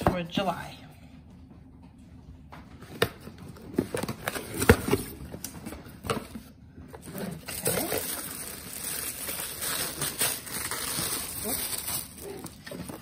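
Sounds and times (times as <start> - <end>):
tissue paper rustling: 7.5 - 13.0.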